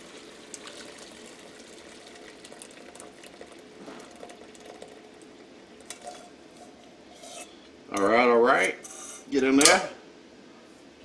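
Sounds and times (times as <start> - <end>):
liquid pouring through strainer: 0.0 - 6.4.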